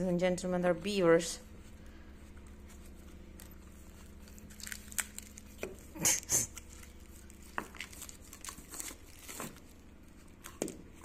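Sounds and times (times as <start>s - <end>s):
dogs gnawing on a stick: 2.4s - 11.0s
bark cracking and tearing: 2.9s - 11.0s.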